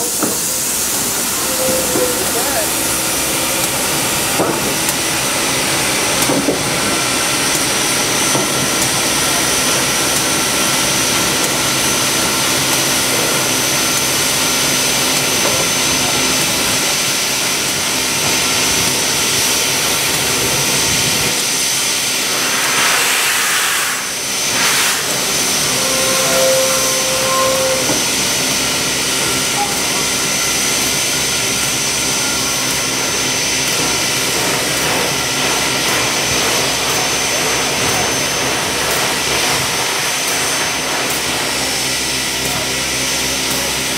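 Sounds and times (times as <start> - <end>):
steam locomotive roar and hiss: 0.0 - 43.9
burst of hissing steam: 22.2 - 29.6
high steady whine: 24.0 - 30.4.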